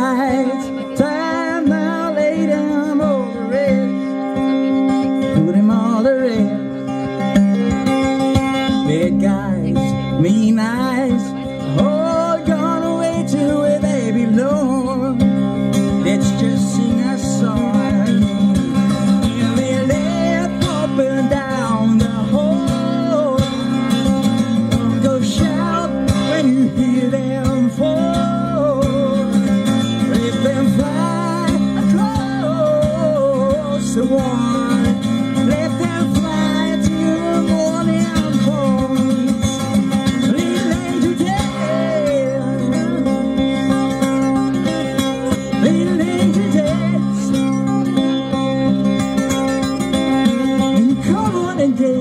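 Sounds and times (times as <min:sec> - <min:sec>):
strummed acoustic guitar: 0:00.0 - 0:52.0
person singing: 0:24.7 - 0:43.6, 0:45.2 - 0:47.7.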